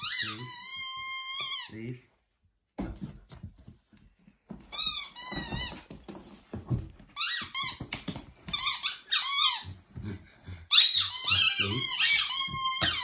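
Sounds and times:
plush toy squeaker squeaking: 0.0 - 1.7, 10.7 - 13.0.

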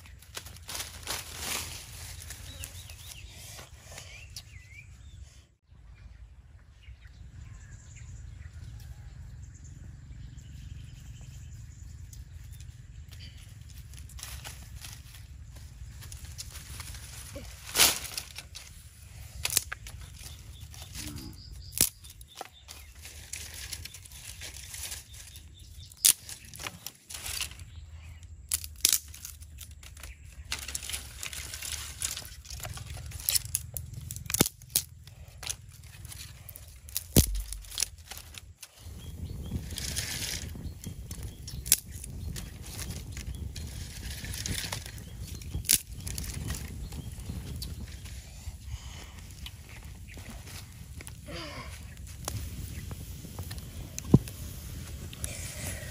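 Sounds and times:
low outdoor rumble: 0.0 - 55.9
fire crackling and hissing: 30.7 - 55.9.

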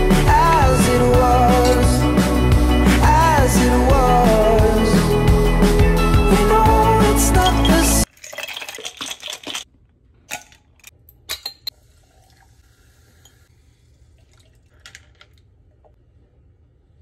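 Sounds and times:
ice clinking against glass: 1.6 - 1.9, 7.3 - 9.6
ice cubes clattering into glass jar: 7.4 - 9.7
liquid pouring over ice: 8.0 - 9.7.

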